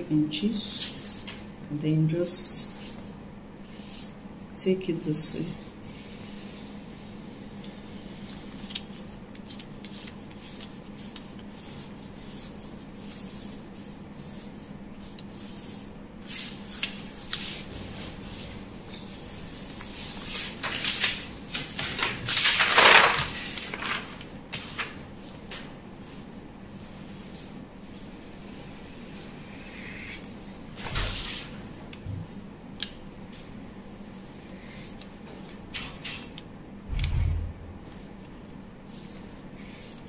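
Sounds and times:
marker scratching on paper: 5.8 - 17.6, 38.8 - 40.0
paper rustling and sliding: 7.8 - 18.6, 19.4 - 26.2, 37.9 - 40.0
low steady hum: 36.4 - 40.0.

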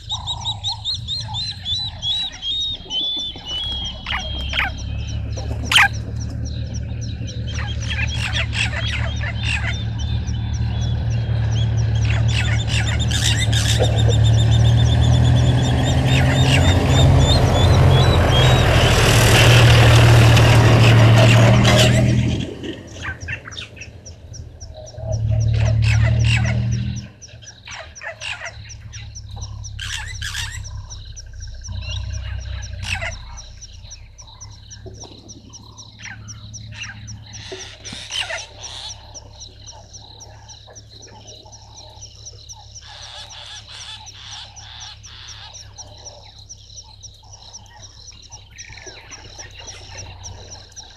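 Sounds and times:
loud low humming: 0.0 - 27.2, 28.6 - 37.6
birds calling: 0.0 - 50.9
frogs croaking: 0.0 - 50.9
rapid high chirping: 0.0 - 50.9.

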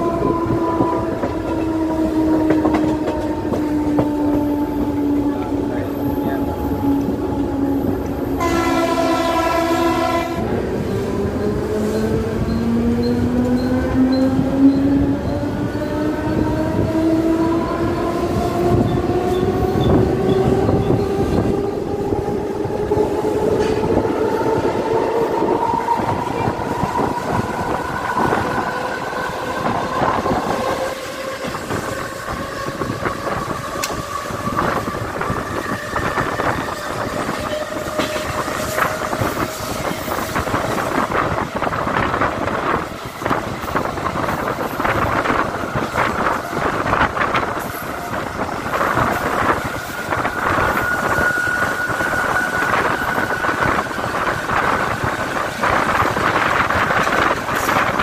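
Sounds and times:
train horn blast: 0.0 - 5.6, 7.8 - 10.6
train wheels clattering on rails: 0.0 - 6.4, 10.4 - 58.0.

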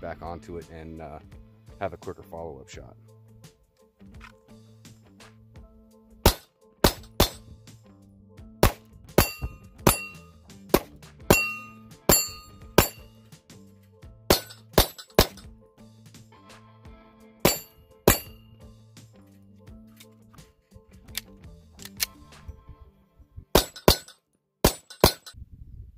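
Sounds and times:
pistol shots: 6.3 - 7.5, 8.6 - 11.5
short metallic ring: 9.2 - 10.4, 11.3 - 13.2, 17.5 - 18.5, 23.6 - 25.4.

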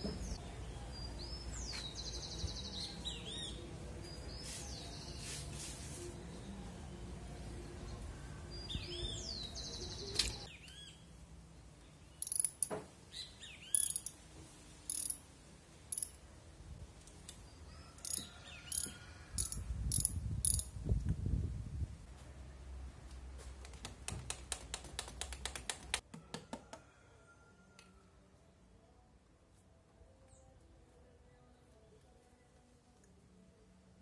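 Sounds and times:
socket ratchet clicking: 12.2 - 12.7, 13.7 - 14.2, 14.9 - 15.2, 15.9 - 16.2, 18.0 - 20.7.

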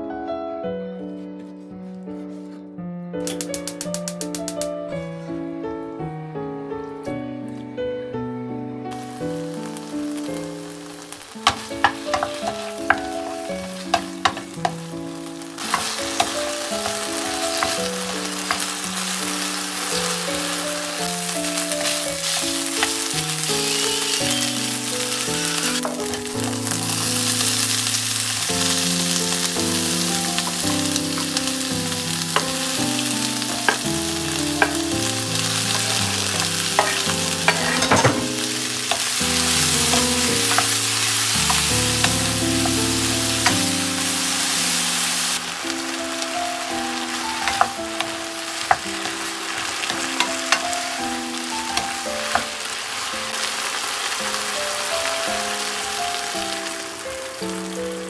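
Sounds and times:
soft piano music: 0.0 - 58.0
food sizzling in a frying pan: 3.3 - 4.8, 8.9 - 58.0
wooden spatula scraping a pan: 11.2 - 14.8, 15.6 - 20.9, 21.5 - 28.4, 32.3 - 43.7.

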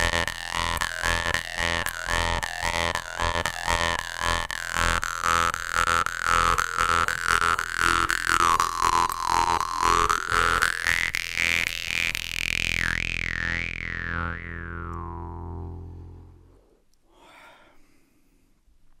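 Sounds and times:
jaw harp plucks: 0.0 - 16.6.

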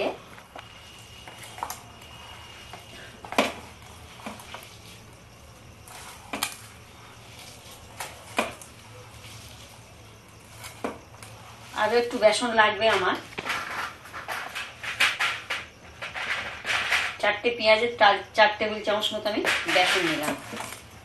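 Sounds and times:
hand mixing in a bowl: 0.0 - 14.0.

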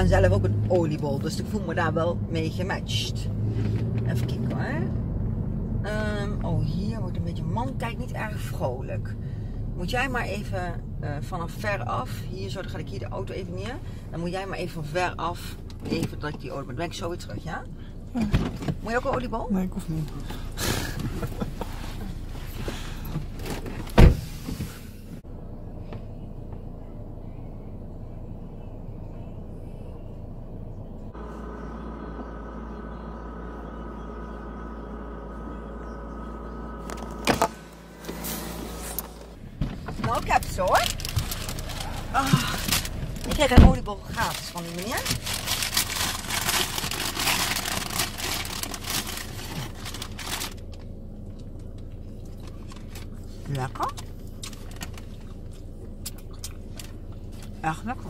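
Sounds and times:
car door slamming: 23.2 - 24.7, 37.0 - 40.4, 42.1 - 43.9
paper bag rustling: 40.1 - 50.7.

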